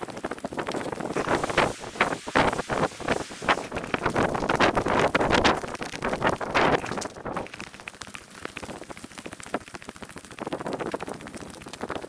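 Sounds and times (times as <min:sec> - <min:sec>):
wind buffeting microphone: 0:00.0 - 0:07.6.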